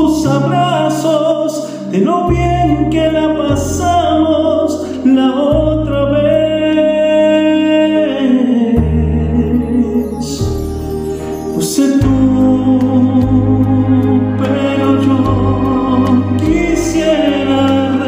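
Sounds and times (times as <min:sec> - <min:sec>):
backing track with bass: 0:00.0 - 0:18.0
man singing a slow bolero: 0:00.0 - 0:18.0.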